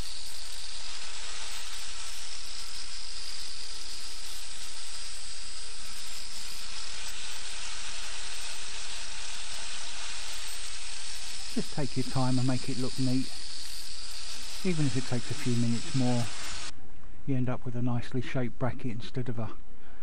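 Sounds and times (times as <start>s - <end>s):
angle grinder grinding metal: 0.0s - 16.7s.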